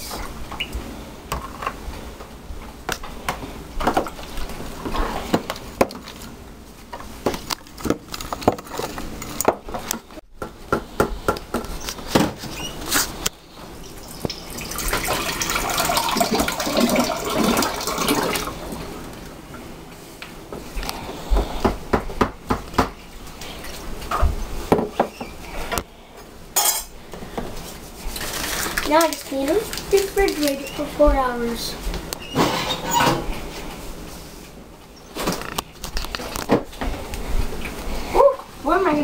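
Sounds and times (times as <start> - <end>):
water pouring into glass: 14.3 - 18.5.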